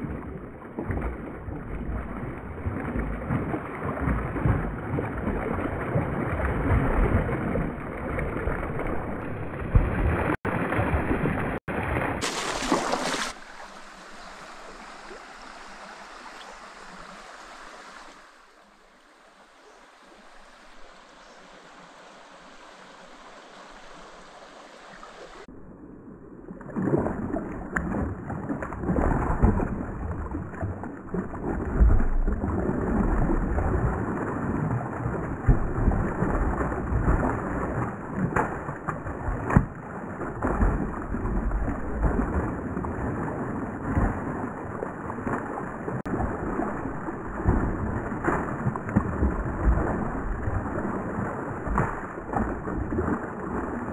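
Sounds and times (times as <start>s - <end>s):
creek water running softly: 0.0s - 53.9s
fish thrashing and splashing: 6.2s - 13.8s, 26.7s - 53.9s.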